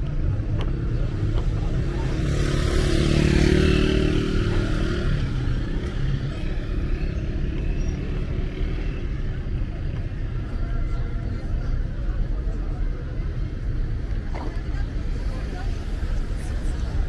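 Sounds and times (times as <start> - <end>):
street traffic rumbling: 0.0 - 17.0
vehicle passing close by: 1.8 - 5.6.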